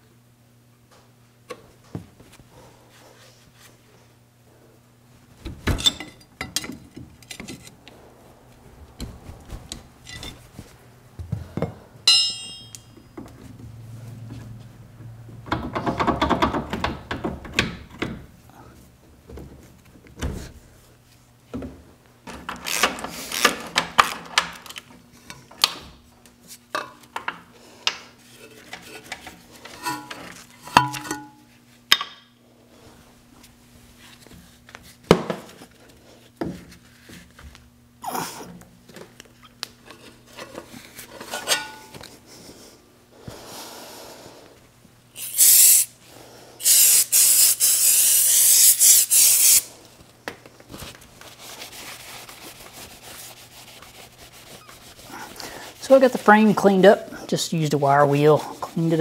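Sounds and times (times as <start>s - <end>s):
loud hissing bursts: 45.2s - 46.0s, 46.6s - 49.7s.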